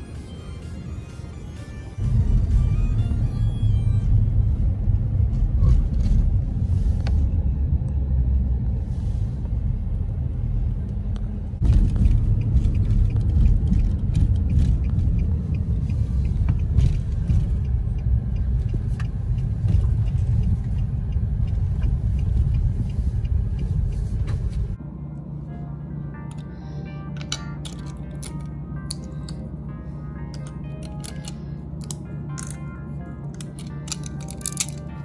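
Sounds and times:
engine and road rumble: 0:00.0 - 0:35.0
small clicks and rattles: 0:33.4 - 0:34.9.

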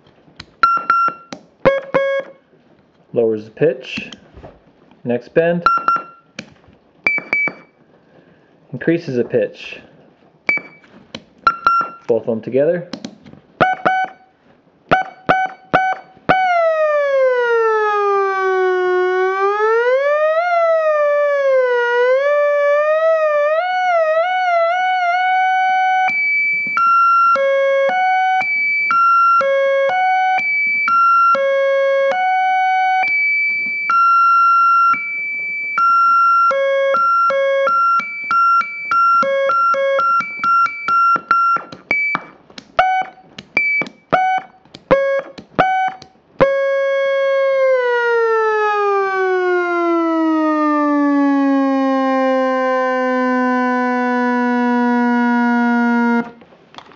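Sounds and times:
buzzy electronic theremin tone: 0:00.8 - 0:02.4, 0:14.9 - 0:43.2, 0:43.8 - 0:56.4.

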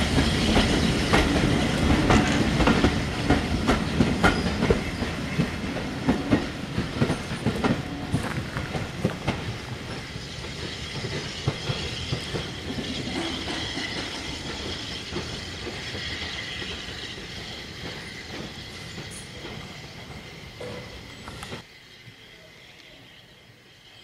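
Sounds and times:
train wheels clattering over joints: 0:00.0 - 0:21.7
faint high wheel squeal: 0:03.8 - 0:05.4, 0:09.5 - 0:24.0.

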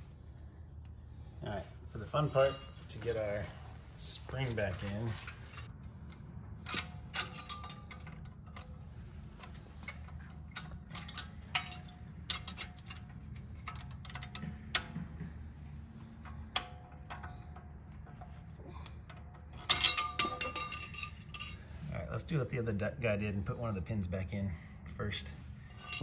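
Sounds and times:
low steady hum: 0:00.0 - 0:26.0
metallic clicks and clinks: 0:04.8 - 0:15.0, 0:15.9 - 0:21.7.

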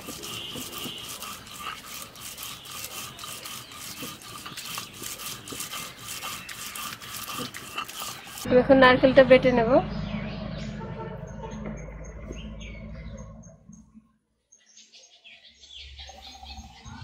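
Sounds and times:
stone scraping on stone: 0:00.0 - 0:08.5.

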